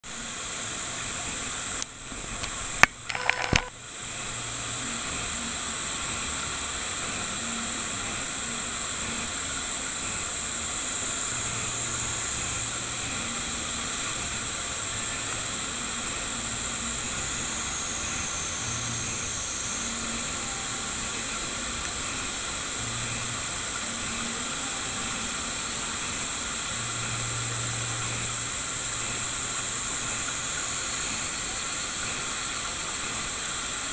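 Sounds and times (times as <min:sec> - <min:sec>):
steady high-pitched hiss: 0:00.0 - 0:33.9
sharp clicks: 0:01.8 - 0:03.7.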